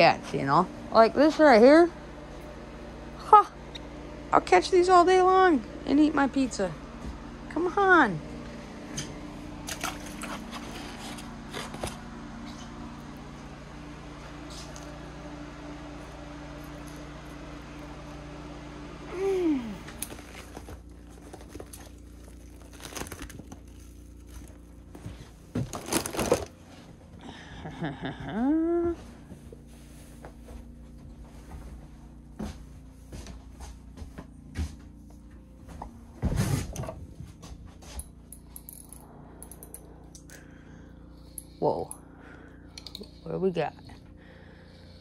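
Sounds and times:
clatter of things being handled: 19.9 - 26.6.

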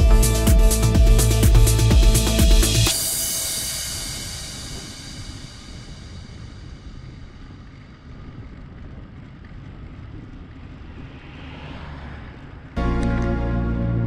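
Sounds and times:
rushing hiss: 2.7 - 7.9
wind rumbling on microphone: 3.6 - 12.8.

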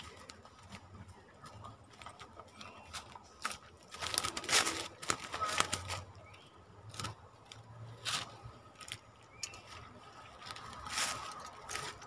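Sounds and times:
faint bird chirps: 2.4 - 3.2
rustles and scrapes at a trap: 6.9 - 12.0.

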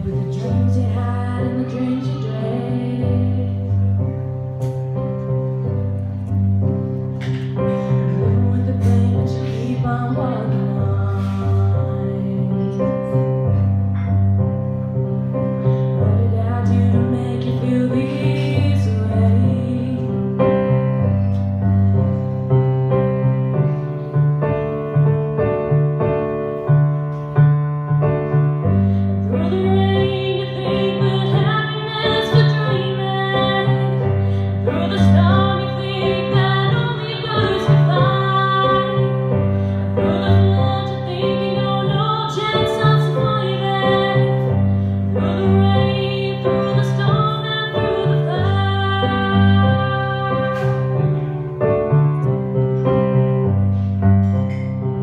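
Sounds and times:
woman singing: 0.0 - 4.3, 8.0 - 13.6, 16.0 - 20.8, 29.2 - 51.2
electric piano chords: 0.0 - 55.0.

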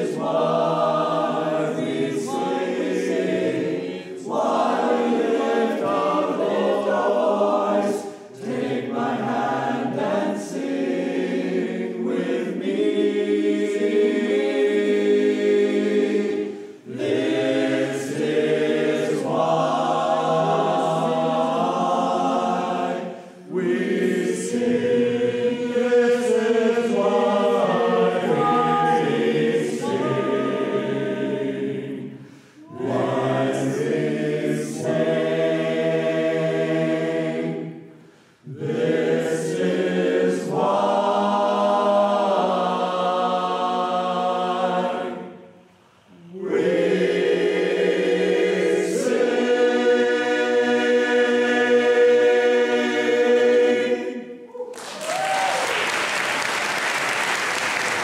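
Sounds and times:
men's chorus singing: 0.0 - 45.5, 46.1 - 54.5
breaths: 8.0 - 8.3, 16.5 - 16.9, 23.1 - 23.5, 32.2 - 32.7, 37.9 - 38.5, 45.6 - 46.2.

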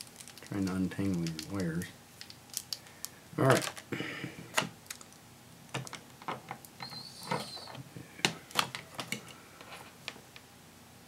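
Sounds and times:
short high-pitched squeak: 6.8 - 7.8.

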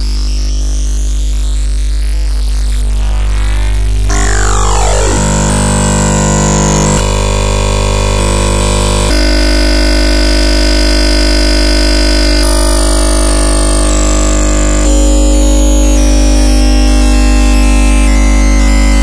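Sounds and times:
dense synthetic buzz: 0.0 - 19.0
high tone sliding downward: 2.8 - 7.2.

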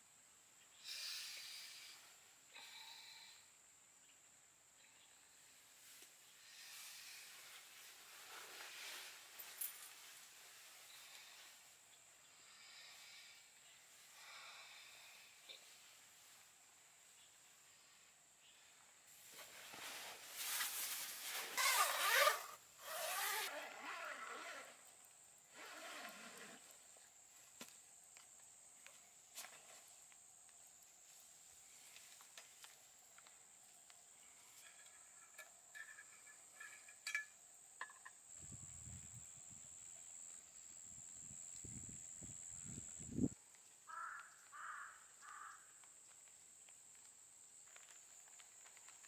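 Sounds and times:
nylon fabric rustling: 7.3 - 10.9, 19.3 - 24.8
tent zipper being pulled: 7.5 - 9.6, 19.4 - 24.9, 25.5 - 26.7
high-pitched insect drone: 38.3 - 43.4.

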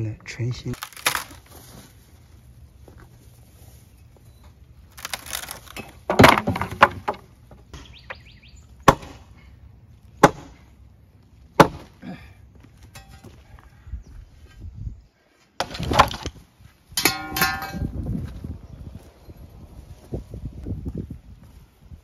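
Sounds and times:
wood cracking and breaking: 0.8 - 1.6, 4.9 - 7.4
sharp wooden knocks: 5.0 - 8.2, 8.8 - 9.2.

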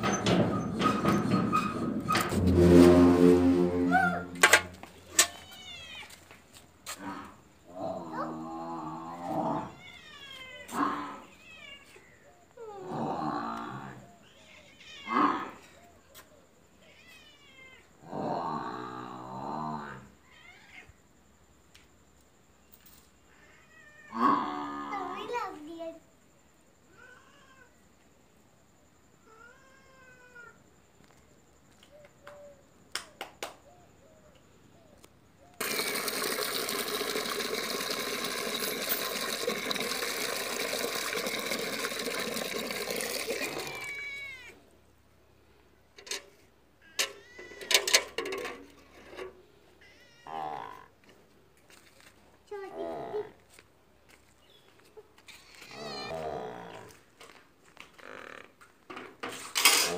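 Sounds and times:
cat meowing: 43.6 - 44.6, 49.8 - 50.4.

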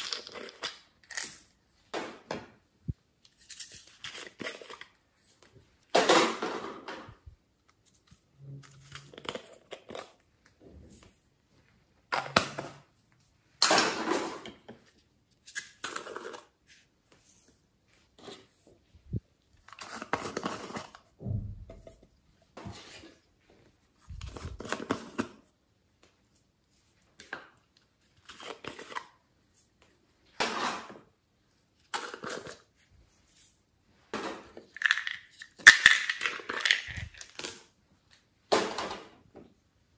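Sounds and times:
plastic containers being handled: 18.1 - 25.5, 34.0 - 37.7.

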